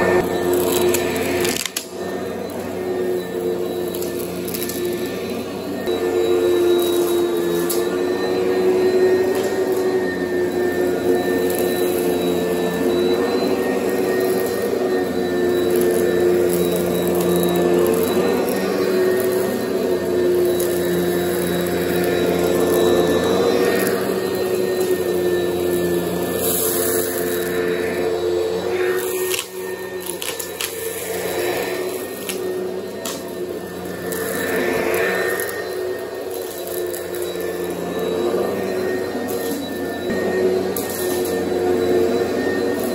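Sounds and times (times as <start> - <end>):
upright vacuum cleaner running: 0.0 - 42.9.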